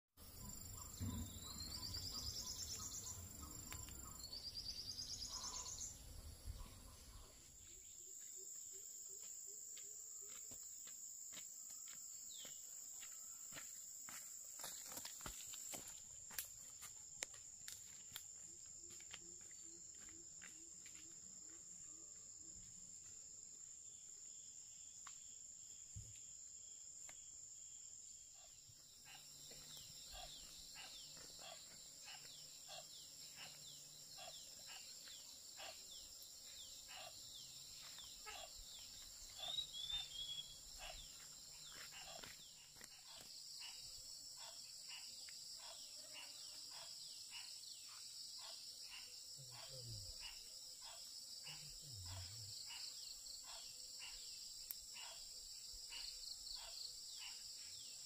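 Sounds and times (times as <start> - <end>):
bird chirping: 0.2 - 9.2, 28.3 - 58.0
insects droning: 0.2 - 58.0.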